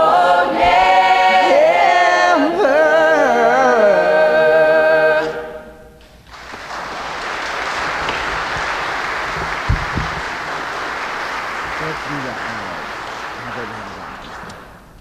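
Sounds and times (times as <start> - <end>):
choir singing a cappella: 0.0 - 6.0
congregation applauding: 6.2 - 15.0
low knocks: 8.0 - 10.7.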